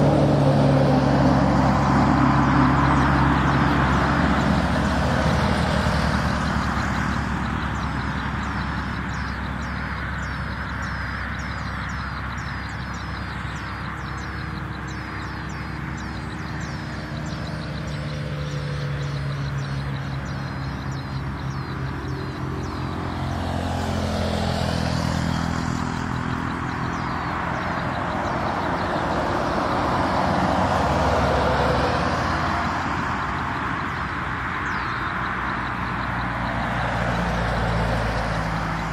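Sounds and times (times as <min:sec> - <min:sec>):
vehicle engine running: 0:00.0 - 0:38.9.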